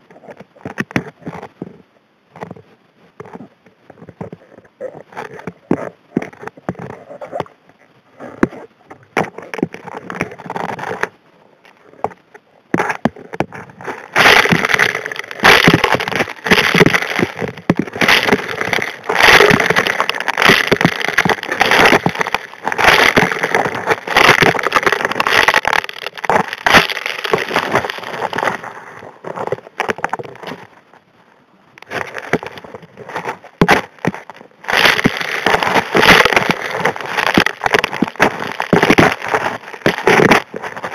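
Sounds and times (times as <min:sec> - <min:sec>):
underwater stones rattling in nozzle: 0:12.0 - 0:30.6, 0:31.8 - 0:40.9.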